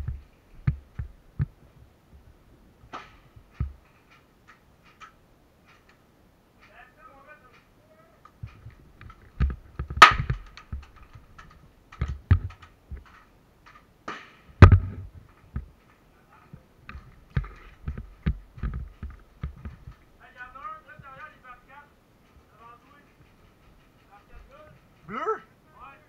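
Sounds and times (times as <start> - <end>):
sharp knocks and thumps: 0.0 - 1.6, 2.8 - 6.0, 8.3 - 16.0, 16.9 - 20.1.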